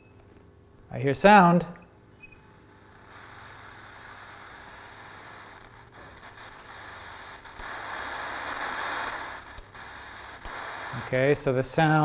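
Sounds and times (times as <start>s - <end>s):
television static hiss: 2.4s - 12.0s.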